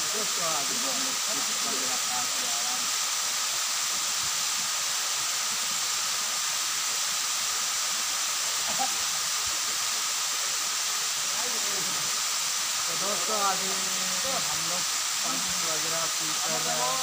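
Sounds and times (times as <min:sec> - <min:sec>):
waterfall pouring into pool: 0:00.0 - 0:17.0.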